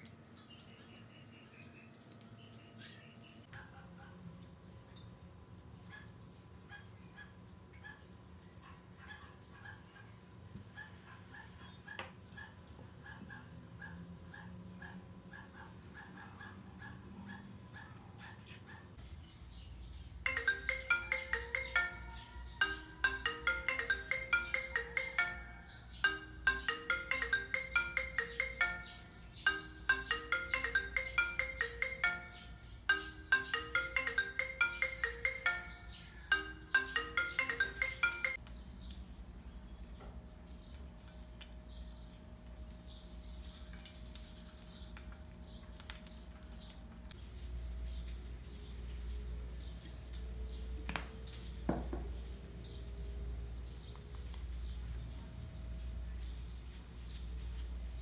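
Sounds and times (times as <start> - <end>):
bright repeating melody: 20.2 - 38.4.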